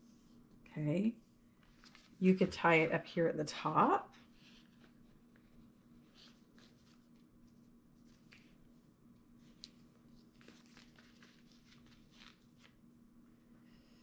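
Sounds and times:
faint steady hum: 0.0s - 14.0s
twine and paper rustling: 1.6s - 2.9s, 4.1s - 8.8s, 9.4s - 12.8s.

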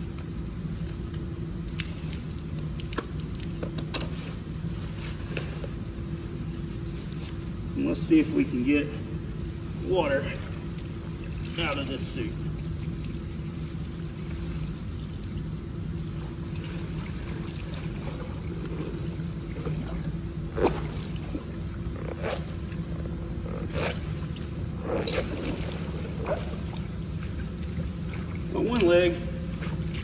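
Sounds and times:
low machinery hum: 0.0s - 30.0s
rustles and knocks of drysuit: 0.5s - 7.7s.

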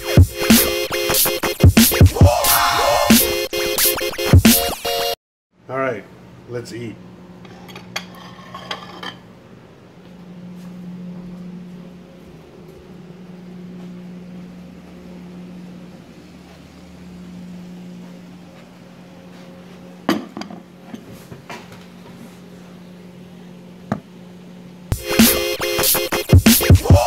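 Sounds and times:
low room hum: 5.6s - 24.9s
plate and fork clinking: 7.5s - 9.3s.

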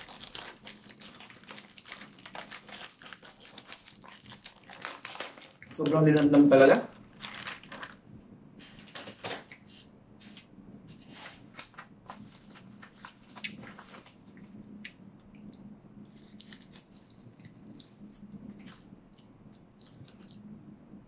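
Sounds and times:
plastic pack crinkling: 0.0s - 8.0s, 11.4s - 14.5s, 16.1s - 18.9s
crunchy bites and chewing: 12.1s - 15.0s, 16.1s - 20.4s.

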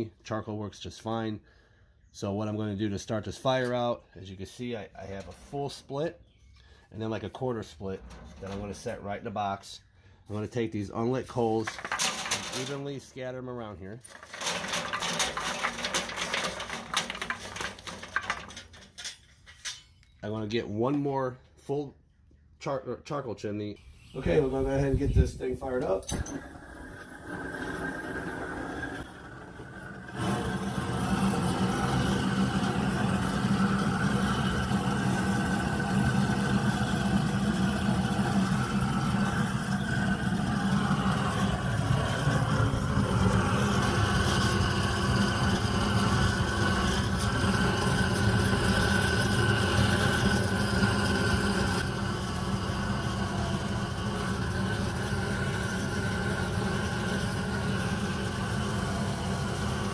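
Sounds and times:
propane torch burning: 10.3s - 13.0s, 14.0s - 19.7s, 24.2s - 59.9s.

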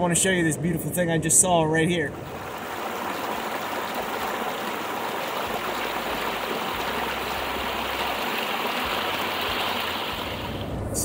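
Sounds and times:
stream splashing over rocks: 2.2s - 10.7s.

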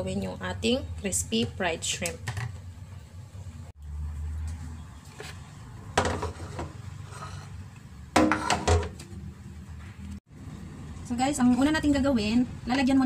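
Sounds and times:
dishes knocking and scraping: 5.9s - 7.4s, 8.2s - 9.0s.

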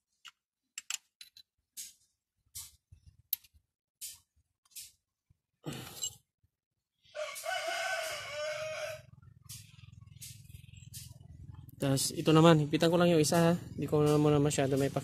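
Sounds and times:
metallic clicks of hand tools: 0.2s - 5.0s
rooster crowing: 7.1s - 9.2s.

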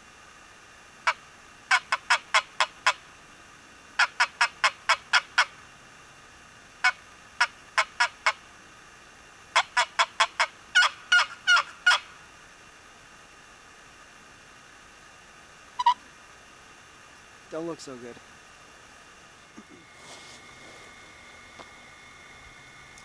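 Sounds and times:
turkey box call yelps: 1.0s - 3.0s, 4.0s - 5.6s, 6.8s - 8.4s, 9.6s - 12.2s, 15.8s - 16.1s.

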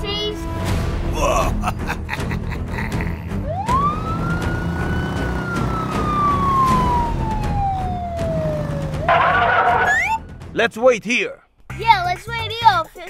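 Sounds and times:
police siren wailing: 3.4s - 10.4s.

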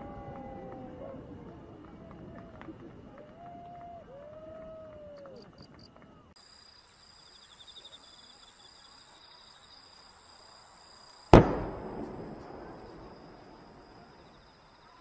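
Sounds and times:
crickets chirring: 5.5s - 15.0s
firework bang with echo: 11.3s - 14.3s.

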